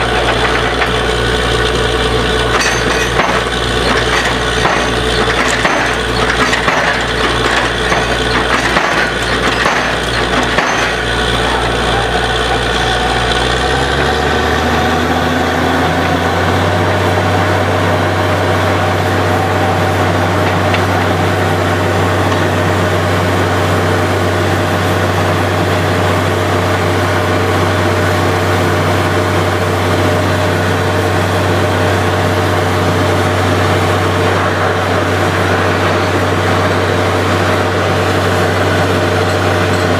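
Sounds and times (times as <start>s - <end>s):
drilling rig engine running: 0.0s - 39.9s
rig rattling and knocking: 2.4s - 11.9s.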